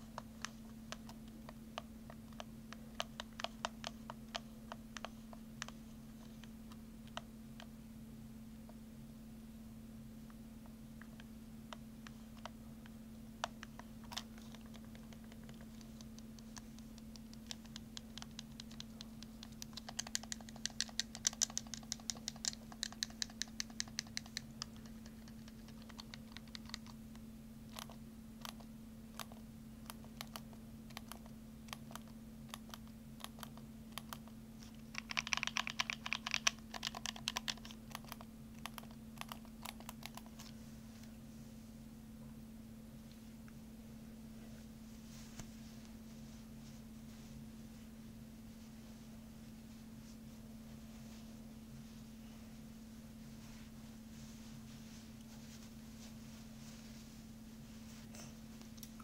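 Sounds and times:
keyboard keys clicking: 0:00.0 - 0:05.8, 0:13.4 - 0:27.0, 0:34.9 - 0:40.4
steady low hum: 0:00.0 - 0:59.0.

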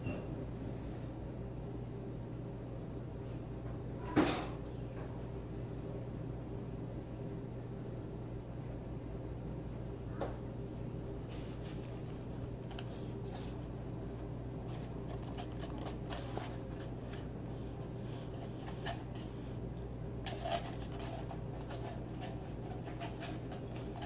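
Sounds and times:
steady low hum: 0:00.0 - 0:24.0
hands handling foam cup: 0:14.6 - 0:17.3.

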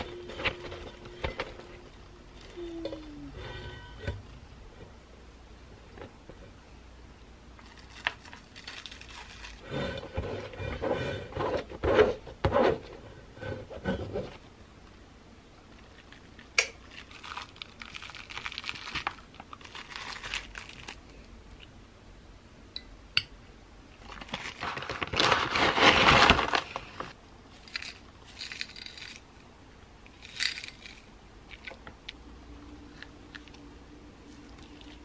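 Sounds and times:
crinkling packaging: 0:07.6 - 0:09.7, 0:15.7 - 0:21.3, 0:24.0 - 0:29.2, 0:30.1 - 0:31.8
granola rattling into bowl: 0:27.6 - 0:29.2, 0:30.2 - 0:31.7.

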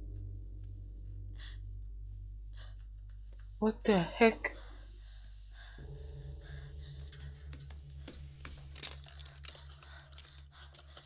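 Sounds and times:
pulsing low drone: 0:00.0 - 0:11.0
faint clicks and crackles: 0:07.6 - 0:11.0.

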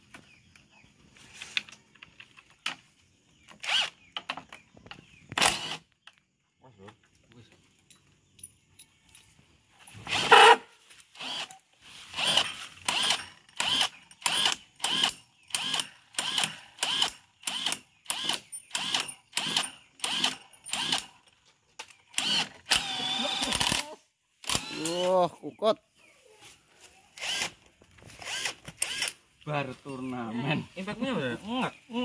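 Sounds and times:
cordless drill whirring: 0:03.6 - 0:04.0, 0:05.4 - 0:05.8, 0:10.0 - 0:10.6, 0:11.2 - 0:11.6, 0:12.2 - 0:21.2, 0:22.1 - 0:23.8, 0:24.4 - 0:25.0, 0:27.2 - 0:27.6, 0:28.2 - 0:29.2.

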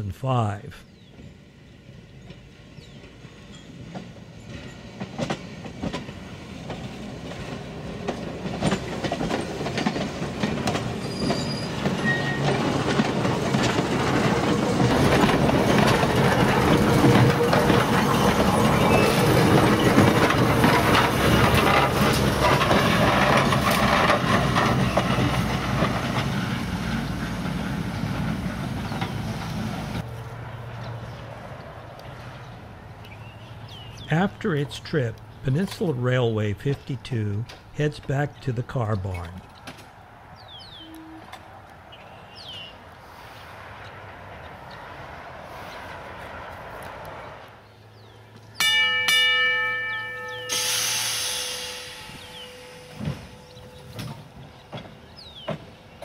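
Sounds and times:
train wheels clicking over rail joints: 0:02.1 - 0:30.1, 0:49.7 - 0:56.0.

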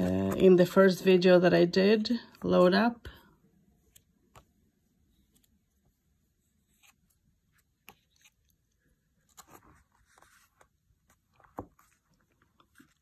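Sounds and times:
book pages turning: 0:00.0 - 0:00.7, 0:06.5 - 0:13.0.

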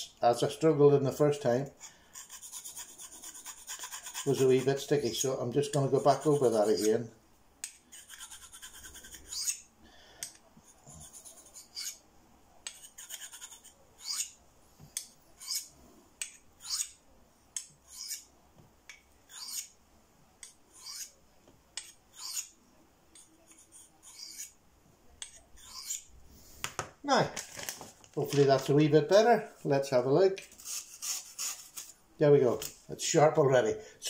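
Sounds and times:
knife scraping on sharpening stone: 0:06.1 - 0:07.0, 0:07.6 - 0:09.6, 0:10.9 - 0:12.0, 0:12.7 - 0:14.4, 0:15.0 - 0:17.0, 0:17.6 - 0:18.3, 0:19.3 - 0:19.8, 0:20.4 - 0:21.1, 0:21.8 - 0:22.5, 0:23.2 - 0:24.6, 0:25.2 - 0:26.1.

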